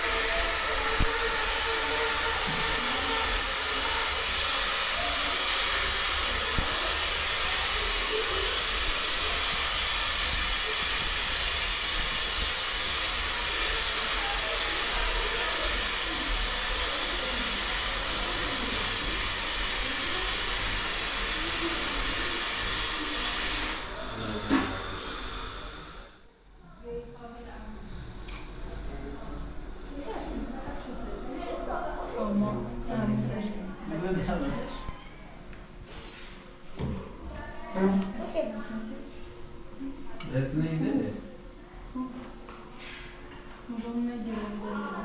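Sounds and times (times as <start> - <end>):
steady hissing: 0.0 - 26.3.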